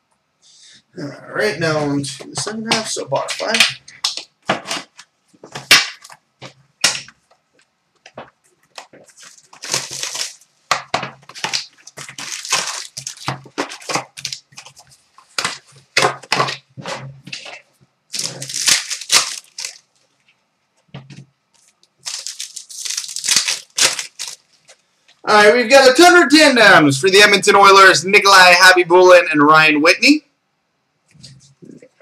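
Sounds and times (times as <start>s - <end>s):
foil wrapper crinkling: 7.5s - 10.5s, 11.1s - 16.6s, 17.4s - 20.2s, 21.6s - 24.8s
cardboard rustling: 7.5s - 20.2s, 21.0s - 24.8s.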